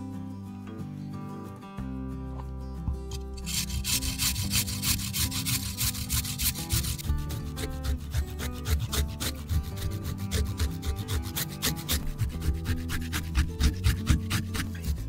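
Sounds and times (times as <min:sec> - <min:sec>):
ginger scraping on grater: 0:03.4 - 0:15.0.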